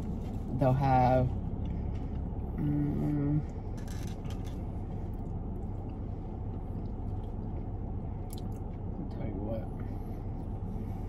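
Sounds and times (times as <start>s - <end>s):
low car cabin hum: 0.0s - 11.0s
person humming: 2.6s - 3.5s.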